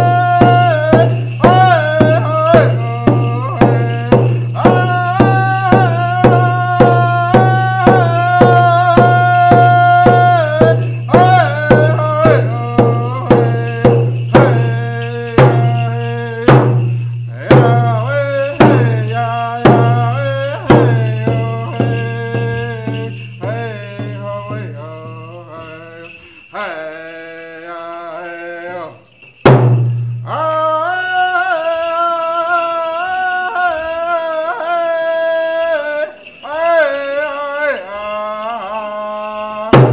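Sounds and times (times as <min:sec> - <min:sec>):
hand drum beaten: 0:00.0 - 0:25.4, 0:29.4 - 0:30.9
man singing long notes: 0:00.0 - 0:29.4, 0:30.1 - 0:39.9.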